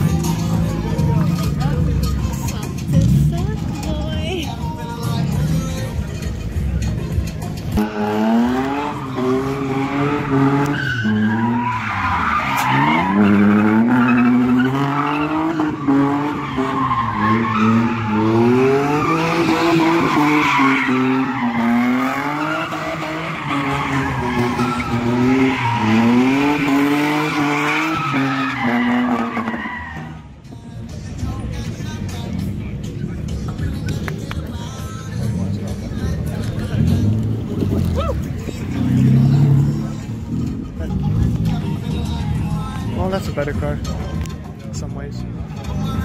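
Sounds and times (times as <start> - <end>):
car engine revving: 0.0 - 30.3, 31.9 - 44.4
tyres screeching: 7.3 - 30.3.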